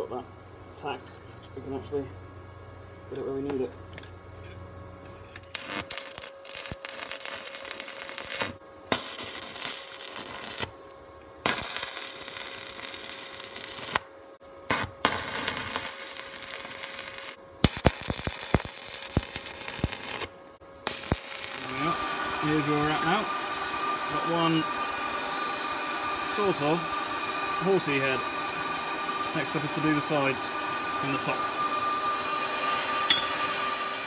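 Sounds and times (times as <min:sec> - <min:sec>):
welding arc crackling: 0:05.5 - 0:31.4.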